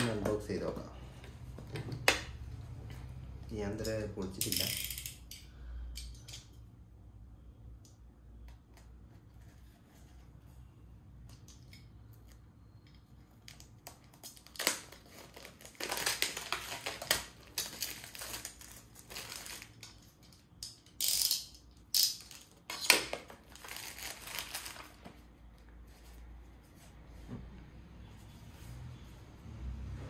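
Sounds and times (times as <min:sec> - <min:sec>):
packaging rustling and scraping: 0:14.4 - 0:20.1, 0:22.2 - 0:27.3.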